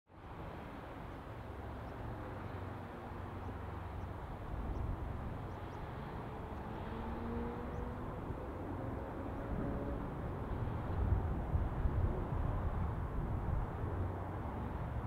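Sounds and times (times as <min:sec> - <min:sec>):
wind buffeting microphone: 0:07.0 - 0:15.0.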